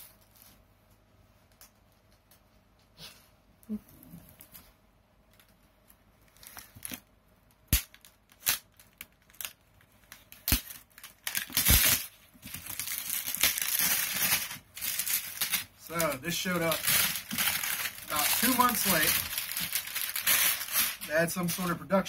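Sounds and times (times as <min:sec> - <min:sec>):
plastic wrap crinkling: 0:06.2 - 0:21.8
plastic wrap snapping: 0:06.3 - 0:21.1.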